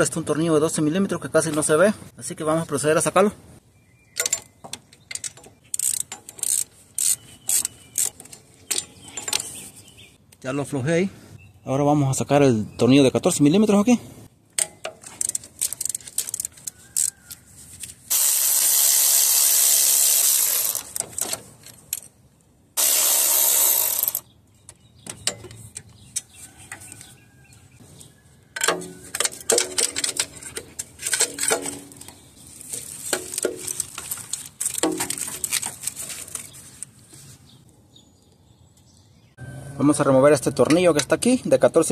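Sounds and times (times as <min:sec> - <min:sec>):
ratchet clicking: 0:05.2 - 0:09.4, 0:18.1 - 0:21.2, 0:22.8 - 0:24.2
power tool running: 0:18.1 - 0:21.0, 0:22.8 - 0:24.2.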